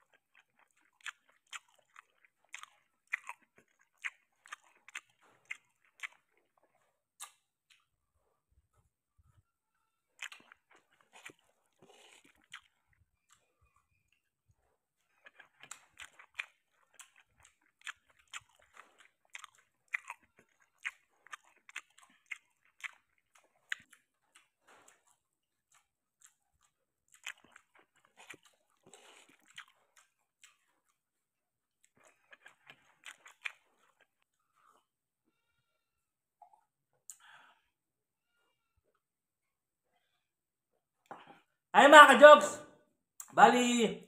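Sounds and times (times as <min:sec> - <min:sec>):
wet chewing: 0:00.0 - 0:08.1, 0:10.1 - 0:35.5.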